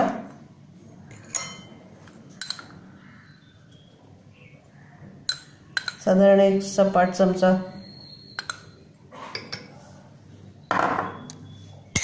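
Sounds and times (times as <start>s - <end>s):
metal spoon clinking ceramic bowl: 1.1s - 1.8s, 2.4s - 2.7s, 5.3s - 6.1s, 8.3s - 9.7s.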